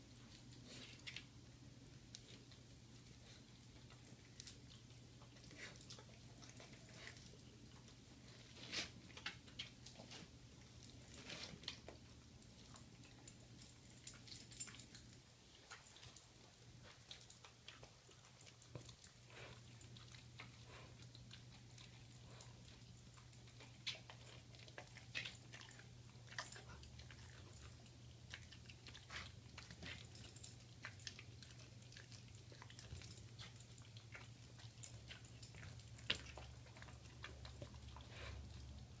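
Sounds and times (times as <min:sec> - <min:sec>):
dog chewing meat: 0:02.1 - 0:39.0.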